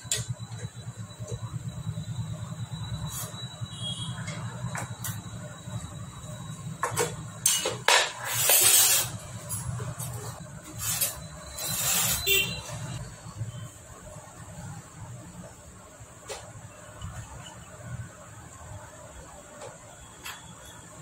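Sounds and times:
metal engine parts scraping: 6.9 - 13.0.

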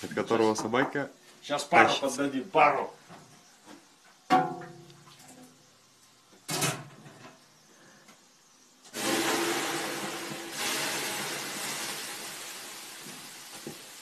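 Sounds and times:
steam hissing: 8.9 - 14.0.

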